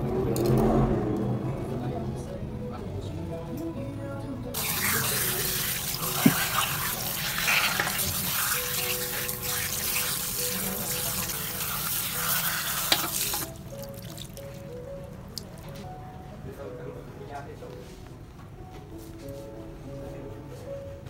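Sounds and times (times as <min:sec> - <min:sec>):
tap water splashing into basin: 0:04.6 - 0:14.4.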